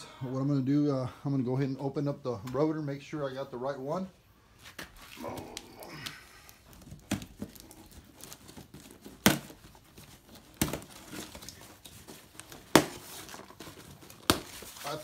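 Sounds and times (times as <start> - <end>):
cardboard rustling: 6.4 - 15.0
cardboard flaps snapping: 6.8 - 7.7, 9.0 - 9.7, 10.4 - 11.6, 12.4 - 14.7.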